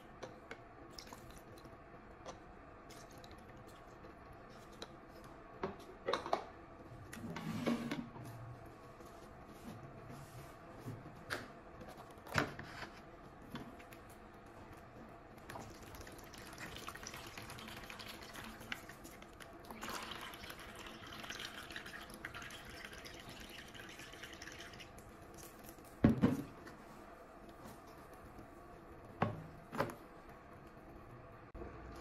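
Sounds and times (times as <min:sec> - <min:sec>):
liquid gushing into plastic tub: 0:15.5 - 0:25.0.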